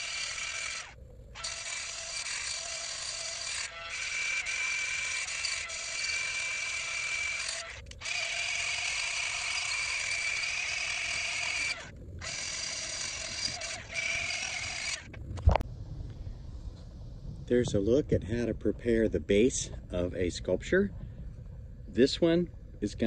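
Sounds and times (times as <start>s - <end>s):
angle grinder whining on wood: 0.0s - 15.2s.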